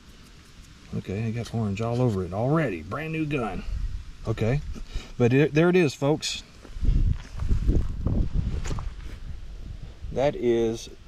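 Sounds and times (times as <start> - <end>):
low microphone rumble: 6.8 - 10.4.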